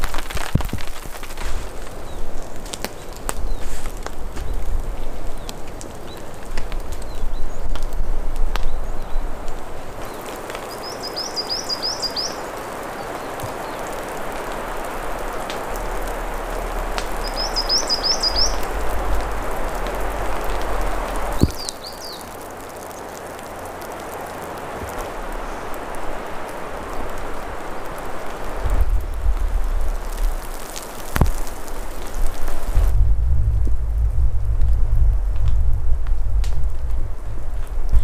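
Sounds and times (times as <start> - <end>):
campfire crackling and popping: 0.0 - 38.0
rain falling: 0.0 - 38.0
songbird chirping: 1.7 - 33.0.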